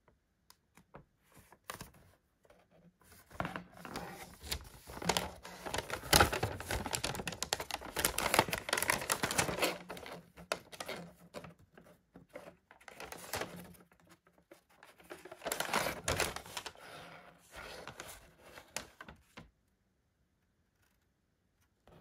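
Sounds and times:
paper sheet rustling and crackling: 1.2 - 2.2, 3.0 - 19.5.

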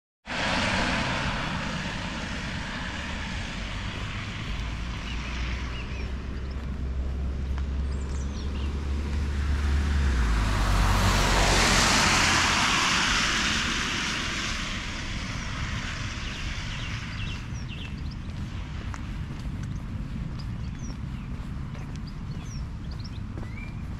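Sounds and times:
car tyres hissing on wet road: 0.3 - 7.0, 8.8 - 17.8.

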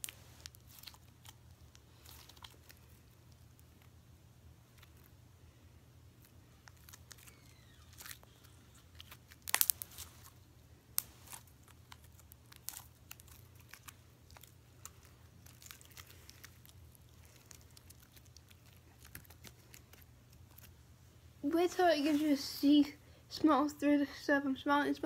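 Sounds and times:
slime clicks and crackling pops: 9.0 - 10.0.

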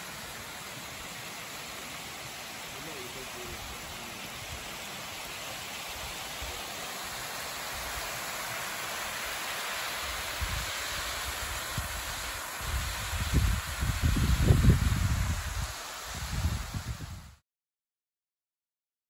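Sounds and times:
water rushing over spillway: 0.0 - 17.4
wind rumble on microphone: 10.3 - 10.7, 11.3 - 17.4.

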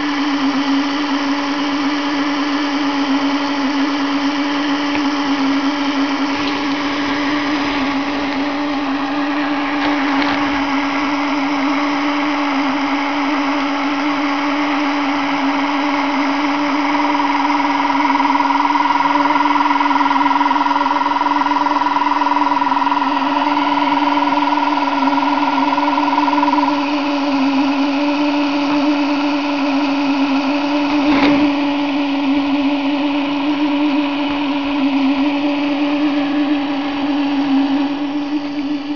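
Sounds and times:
high-pitched whine: 0.0 - 38.9
small electric motor humming: 0.0 - 38.9.

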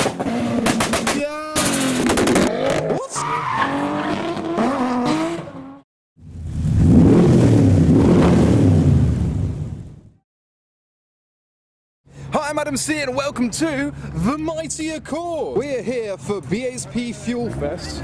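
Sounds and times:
car engines revving: 0.0 - 9.6.

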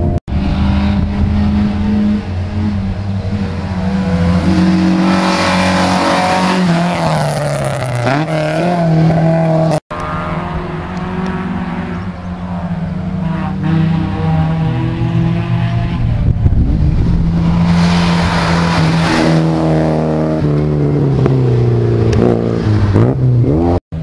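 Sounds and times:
rally car engines revving: 0.0 - 24.0
car passing by: 3.4 - 21.2.

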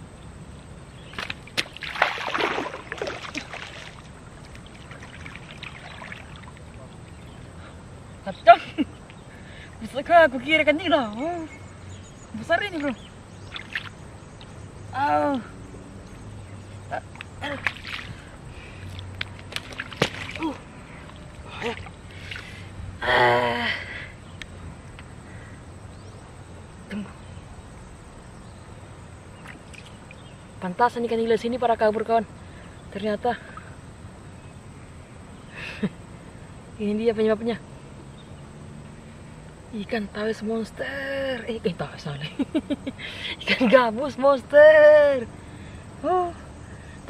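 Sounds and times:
splashing in shallow water: 1.0 - 7.8, 12.4 - 14.6, 16.1 - 23.0, 29.4 - 30.3
person making short oh sounds: 23.0 - 23.9.

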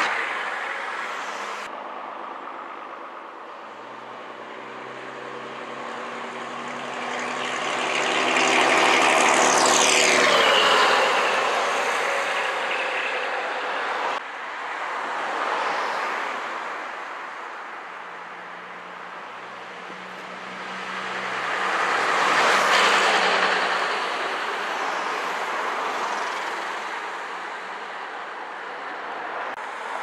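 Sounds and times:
bus engine passing: 3.6 - 14.2, 18.4 - 28.2
car passing: 3.6 - 30.0.

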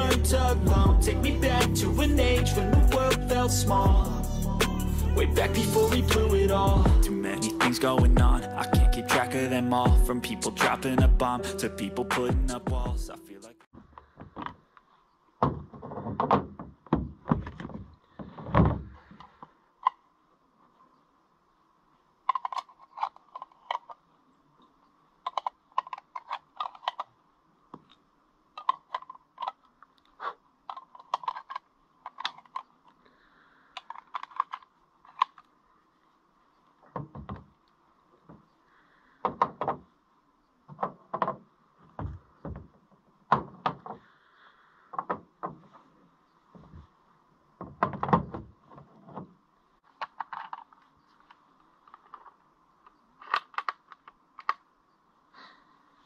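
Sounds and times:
heavier knocks and thumps: 0.6 - 1.1, 8.0 - 9.0, 15.4 - 19.0
sharp clicks and rattles: 22.2 - 24.0, 25.2 - 27.1, 28.6 - 33.0, 33.7 - 35.5, 49.8 - 54.7.

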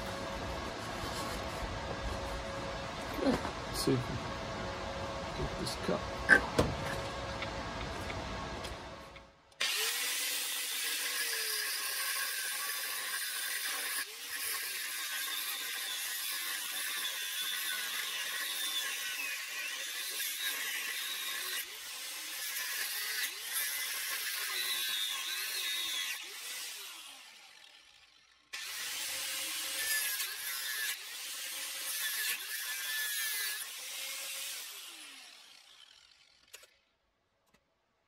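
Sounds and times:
angle grinder cutting steel: 9.6 - 36.9.

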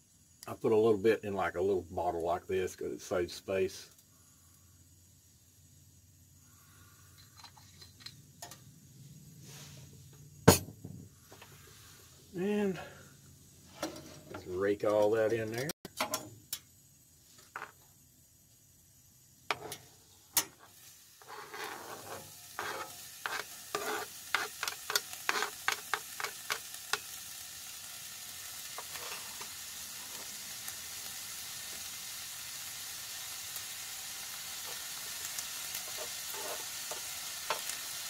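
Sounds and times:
vegetables sizzling in oil: 16.4 - 38.0
utensil scraping cutting board and pan: 20.6 - 26.6, 28.8 - 29.5, 35.8 - 37.7.

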